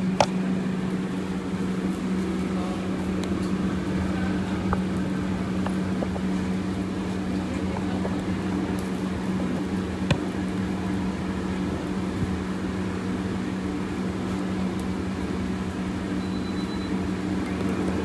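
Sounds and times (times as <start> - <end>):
wok range and hood fan hum: 0.0 - 18.0.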